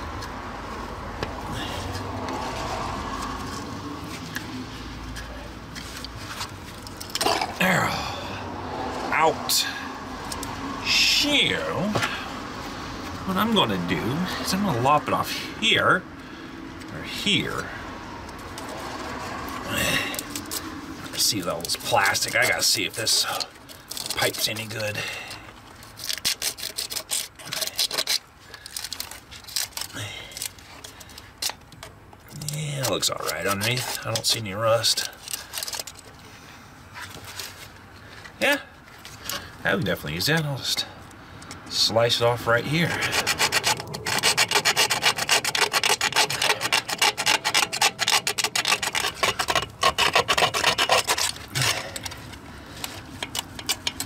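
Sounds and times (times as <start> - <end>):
scraping hose off metal pipe: 18.3 - 36.3, 41.9 - 54.0.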